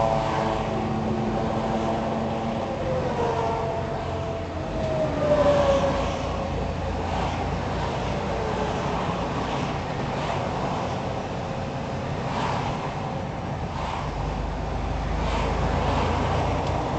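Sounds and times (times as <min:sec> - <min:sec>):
road rumble: 0:00.0 - 0:16.9
truck engine drone: 0:00.0 - 0:16.9.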